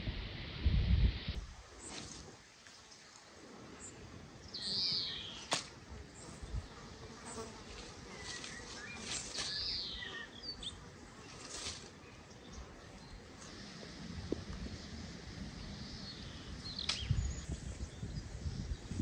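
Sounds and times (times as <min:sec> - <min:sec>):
faint bird chirps: 0:08.1 - 0:13.2
sharp click: 0:16.8 - 0:17.2.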